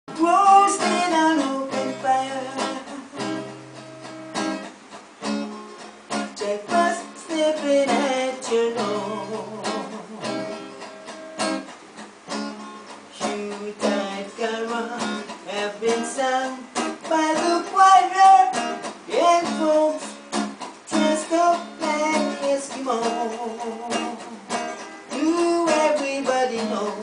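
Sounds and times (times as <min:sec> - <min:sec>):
man singing: 0:00.1 - 0:03.5, 0:06.4 - 0:10.6, 0:13.1 - 0:20.3, 0:20.9 - 0:27.0
acoustic guitar strummed: 0:00.1 - 0:27.0.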